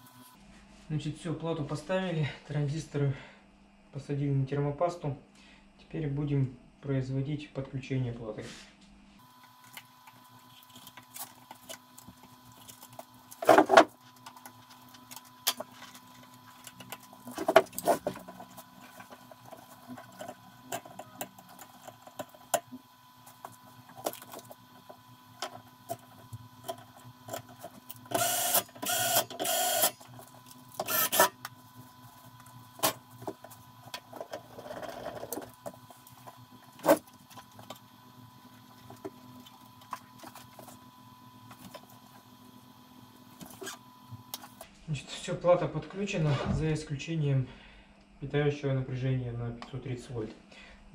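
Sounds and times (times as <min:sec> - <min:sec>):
faint steady hum: 0:00.0 - 0:50.9
scraping and rustling: 0:10.4 - 0:22.6.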